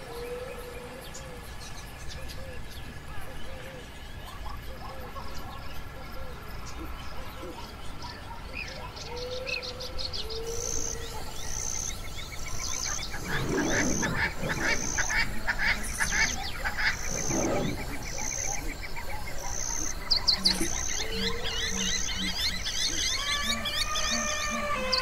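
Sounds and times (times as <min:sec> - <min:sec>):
fast steady insect trill: 0:09.6 - 0:25.0
deep animal calls: 0:11.9 - 0:25.0.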